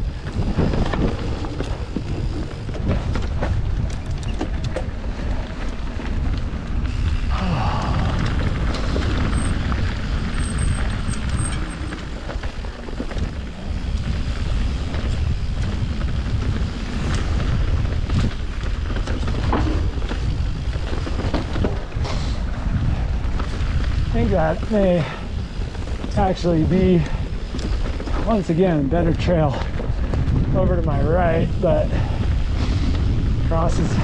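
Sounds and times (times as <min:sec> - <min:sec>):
e-bike rumble on dirt trail: 0:00.0 - 0:34.0
wind buffeting microphone: 0:00.0 - 0:34.0
bike knocking over rocks: 0:00.1 - 0:06.8, 0:08.0 - 0:22.0.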